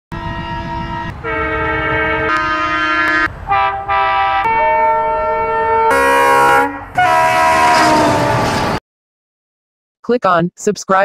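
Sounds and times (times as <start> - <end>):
locomotive horn blasts: 0.1 - 8.8
train rumble: 0.1 - 8.8.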